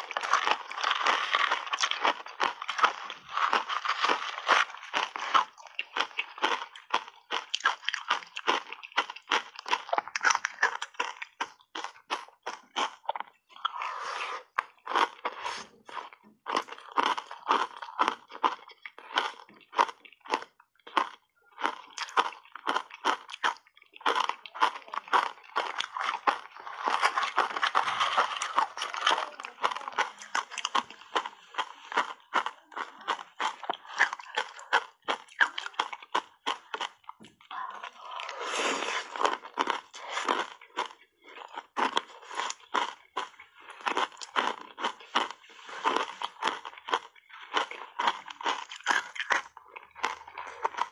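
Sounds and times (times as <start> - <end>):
ice chunks crunching: 0.0 - 50.9.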